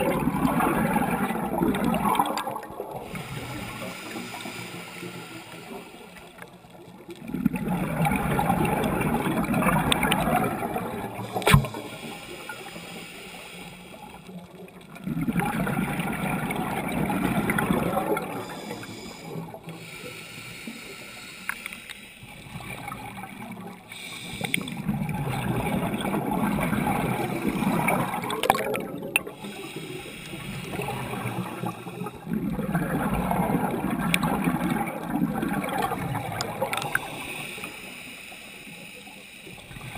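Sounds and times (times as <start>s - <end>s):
diver exhaling bubbles: 0.0s - 4.8s, 7.2s - 12.2s, 22.4s - 29.8s, 30.4s - 37.6s
diver inhaling through regulator: 3.0s - 6.4s, 11.0s - 14.3s, 18.1s - 22.5s, 23.8s - 24.9s, 27.2s - 32.3s, 36.4s - 39.9s.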